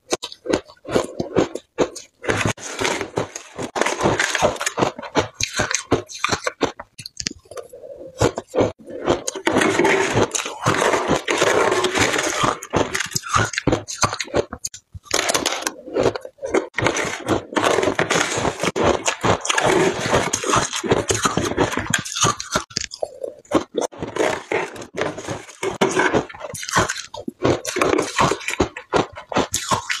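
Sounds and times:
crunching and chewing ice: 0.0 - 30.0.

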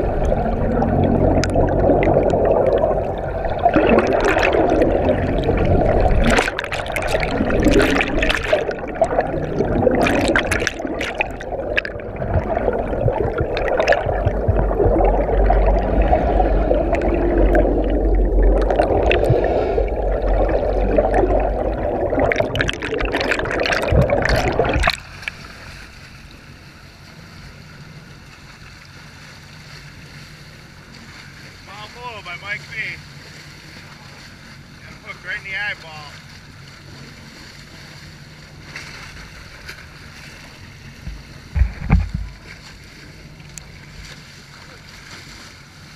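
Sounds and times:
sharp knocks and splashes: 0.0 - 26.0, 36.2 - 45.9
muffled underwater rushing water: 0.0 - 45.9.

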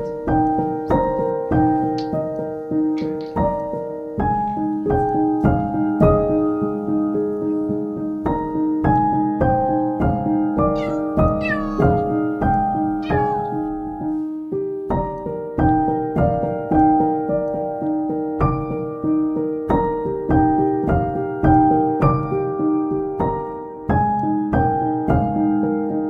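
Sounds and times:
piano music: 0.0 - 26.0
kitten mewing: 10.7 - 12.2, 13.0 - 13.6.

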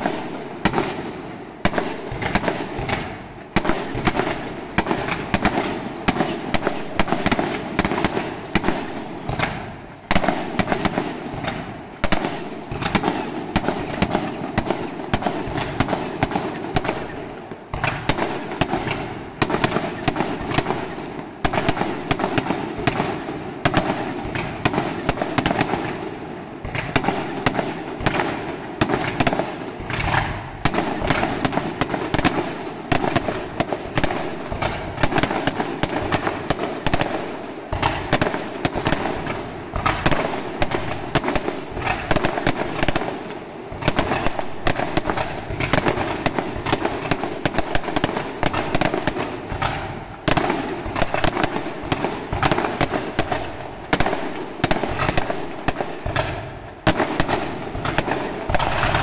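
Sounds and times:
fireworks shell bursts and crackling: 0.0 - 26.0, 26.6 - 59.0.

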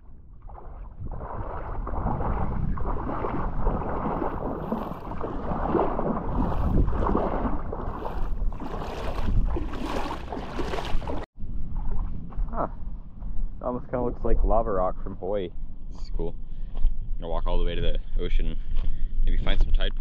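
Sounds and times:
wind buffeting microphone: 0.0 - 14.8.

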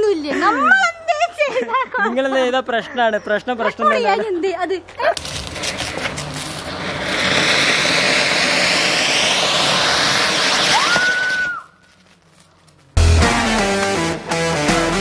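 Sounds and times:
firework whistle: 5.2 - 11.8
firework fountain hissing: 5.2 - 12.4
guitar music: 13.0 - 15.0.

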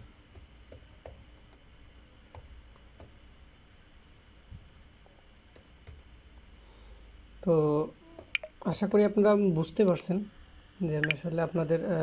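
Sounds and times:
computer keyboard and mouse clicks: 0.4 - 1.6, 8.2 - 8.5.

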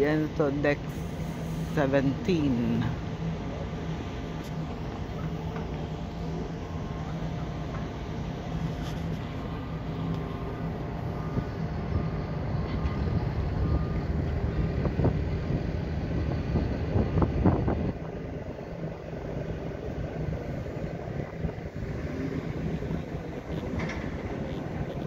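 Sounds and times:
ship machinery humming: 0.0 - 25.0
wind buffeting microphone: 9.0 - 25.0.

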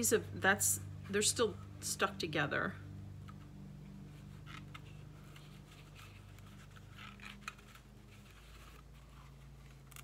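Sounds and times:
steady low hum: 0.0 - 10.0
cardstock rustling: 4.0 - 10.0.

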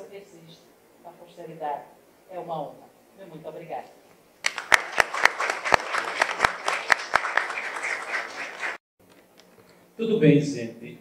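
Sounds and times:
loud sharp claps nearby: 4.4 - 8.8
people clapping: 4.4 - 8.8.

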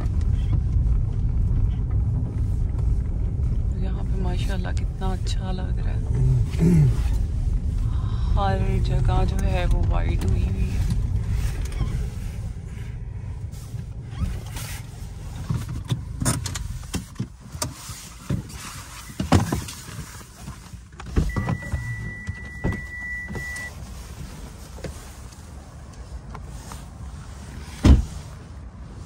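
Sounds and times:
low rumble: 0.0 - 16.9.

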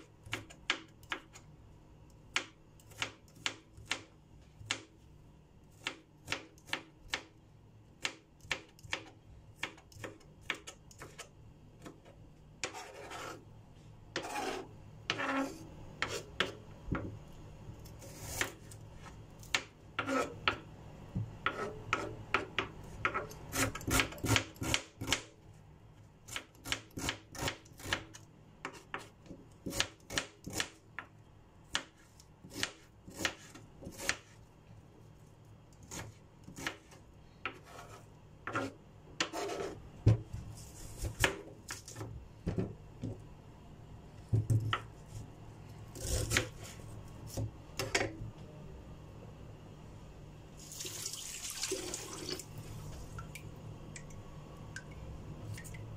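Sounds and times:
knife scraping board: 12.6 - 13.4, 14.2 - 16.6, 20.0 - 20.6, 21.4 - 22.2, 23.0 - 24.5, 35.9 - 39.8, 40.6 - 42.1, 46.0 - 48.0
knife chopping on cutting board: 14.2 - 17.1, 21.3 - 25.2, 31.7 - 34.4, 35.9 - 42.7, 46.0 - 46.7.

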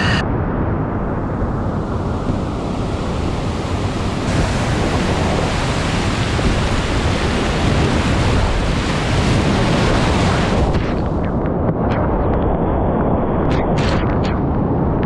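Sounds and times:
whitewater rushing: 2.0 - 11.0.

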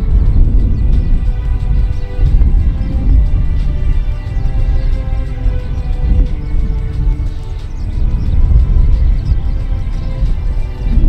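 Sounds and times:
music with deep bass: 0.0 - 11.0.

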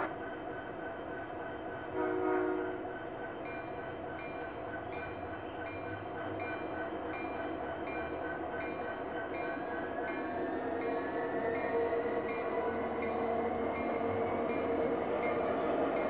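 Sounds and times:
locomotive horn: 2.0 - 2.8.

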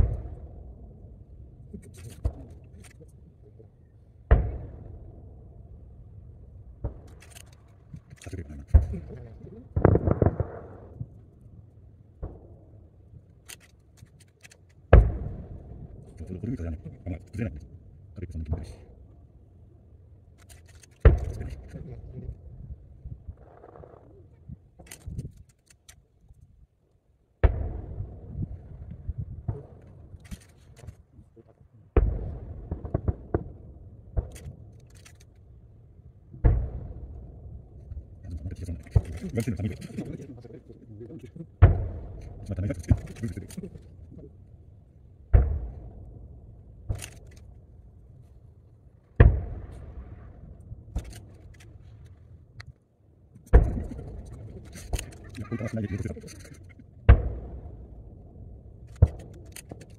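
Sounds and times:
distant firework booms: 0.0 - 1.2, 4.2 - 5.7, 8.3 - 11.2, 14.9 - 16.3, 27.4 - 30.1, 31.9 - 34.6, 36.3 - 37.7, 41.6 - 43.7, 45.3 - 47.0, 49.1 - 51.1, 53.5 - 54.6, 57.0 - 58.2
faint clicks: 13.3 - 14.8.

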